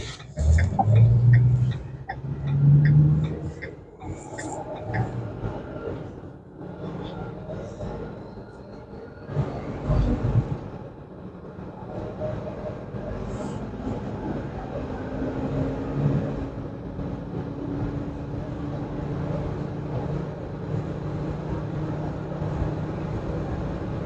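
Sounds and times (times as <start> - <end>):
truck engine running: 0.0 - 8.4
tyre and road noise: 0.0 - 24.0.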